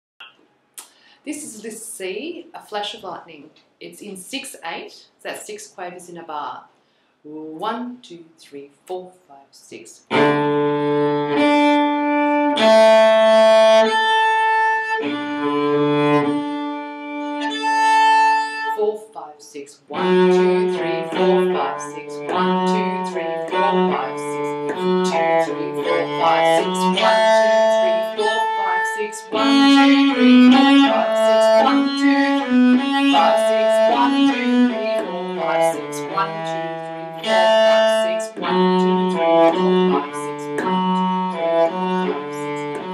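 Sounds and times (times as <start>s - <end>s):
bowed cello melody: 10.1s - 18.8s, 19.9s - 42.9s.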